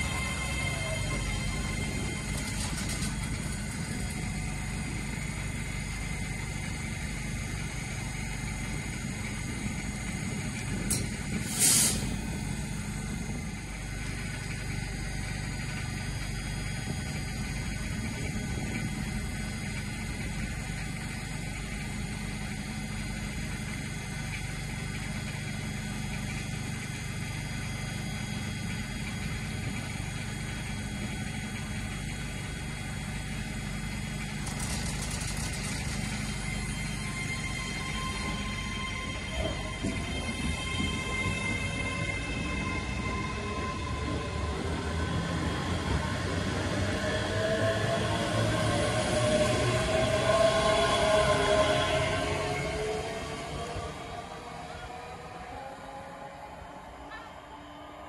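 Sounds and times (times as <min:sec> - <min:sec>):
train equipment humming: 0:00.0 - 0:58.0
sharp air hiss: 0:11.4 - 0:12.2.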